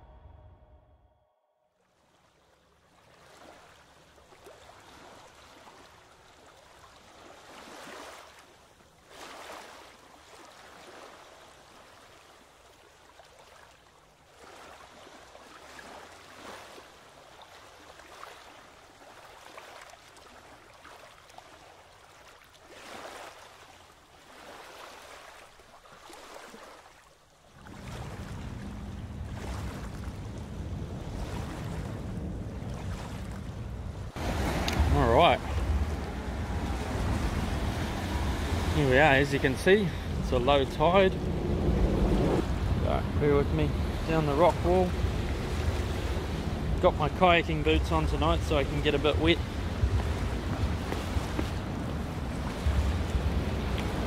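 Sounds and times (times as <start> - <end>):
steady low rumble: 0.0 - 1.3, 27.7 - 54.0
small waves washing against rocks: 3.0 - 54.0.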